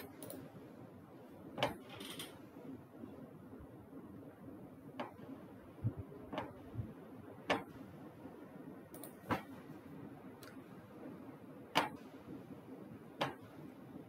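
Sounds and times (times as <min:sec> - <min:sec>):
computer clicks: 0:00.0 - 0:00.5, 0:08.9 - 0:09.5
faint room hum: 0:00.0 - 0:14.0.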